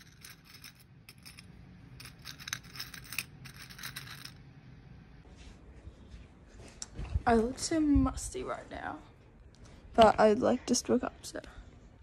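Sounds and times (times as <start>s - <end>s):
metal rings clinking: 0.0s - 4.4s.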